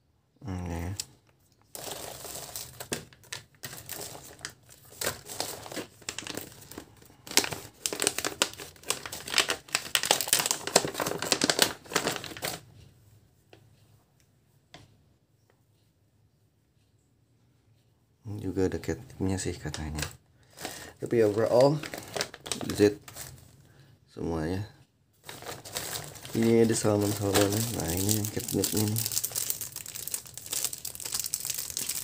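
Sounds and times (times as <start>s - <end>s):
plastic bag crinkling and tearing: 1.7s - 12.6s, 20.0s - 23.6s, 25.2s - 32.0s.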